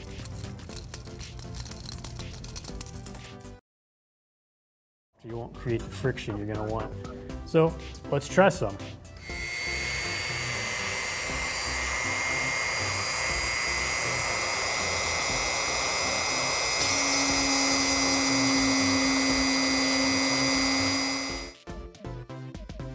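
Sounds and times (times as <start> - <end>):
rotary tool whining: 9.1 - 21.6.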